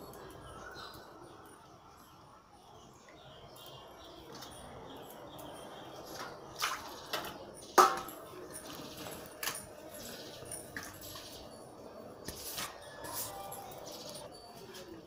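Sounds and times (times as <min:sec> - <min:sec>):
metal bowls and plates clinking: 0:04.2 - 0:15.0.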